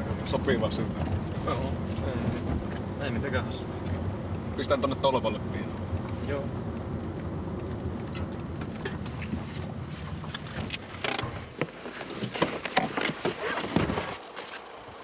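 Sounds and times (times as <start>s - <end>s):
car engine and road rumble: 0.0s - 15.0s.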